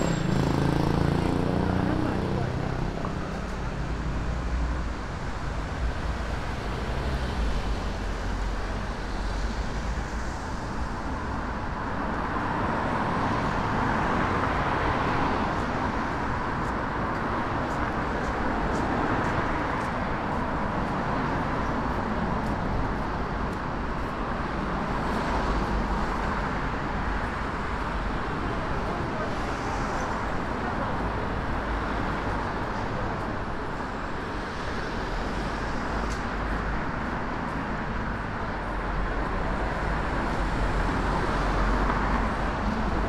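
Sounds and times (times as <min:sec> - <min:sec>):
cars passing on street: 0:00.0 - 0:43.0.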